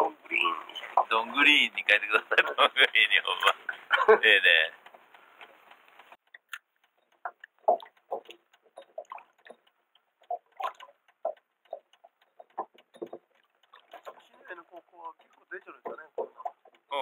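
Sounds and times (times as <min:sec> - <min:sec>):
short knocks and taps: 0:07.2 - 0:16.9.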